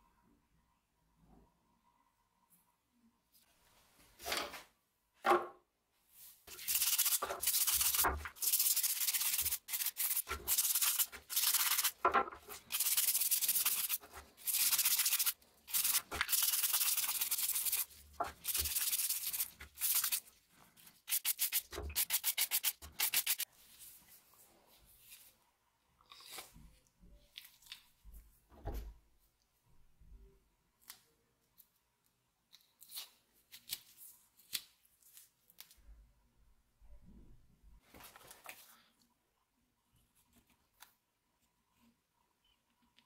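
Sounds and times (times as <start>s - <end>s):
scrub brush scrubbing: 6.5s - 23.5s.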